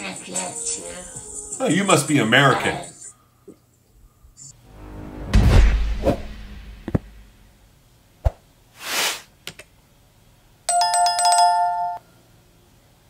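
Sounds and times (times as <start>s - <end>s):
whoosh: 4.5s - 9.2s
thud: 5.1s - 7.5s
notification bell ringing: 10.7s - 12.0s.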